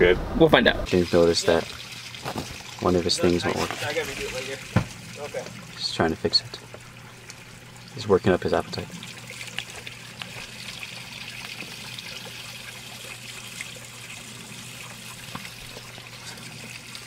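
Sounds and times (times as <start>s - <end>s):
fountain water trickling and splashing: 0.9s - 17.0s.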